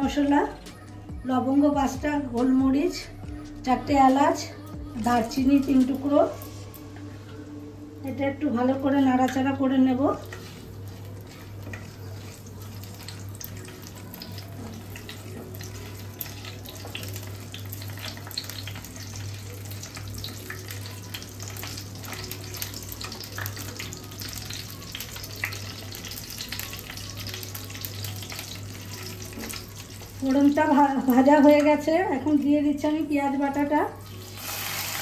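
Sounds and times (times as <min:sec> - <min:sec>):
spices crackling in hot oil: 0:08.1 - 0:35.0.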